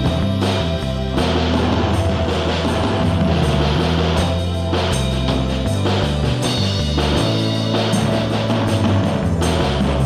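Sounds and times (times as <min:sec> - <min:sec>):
rock music with drums: 0:00.0 - 0:10.0.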